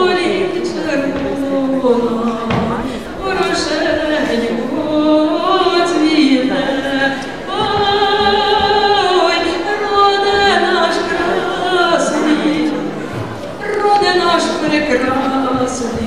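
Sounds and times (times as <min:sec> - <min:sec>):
woman singing with vibrato: 0:00.0 - 0:16.0.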